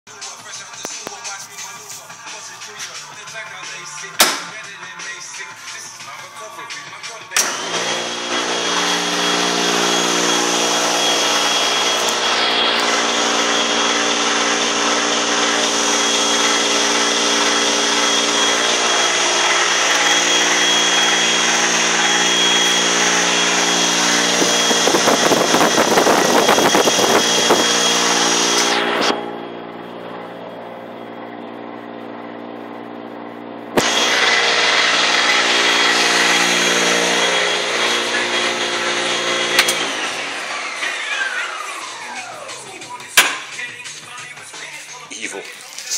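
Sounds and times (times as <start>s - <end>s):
sharp click: 4.2s - 4.6s, 39.6s - 39.8s
electric motor whining: 7.4s - 43.6s.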